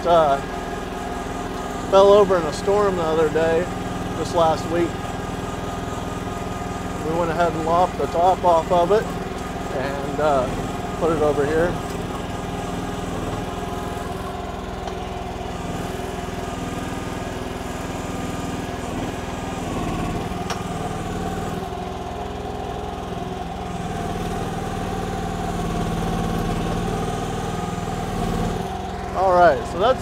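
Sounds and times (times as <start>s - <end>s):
excavator engine running: 0.0s - 30.0s.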